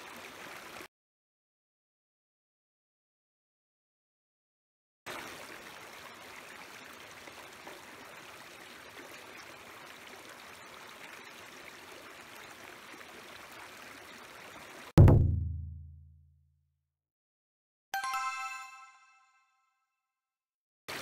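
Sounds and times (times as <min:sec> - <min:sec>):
stream water rushing: 0:00.0 - 0:00.9, 0:05.1 - 0:14.9.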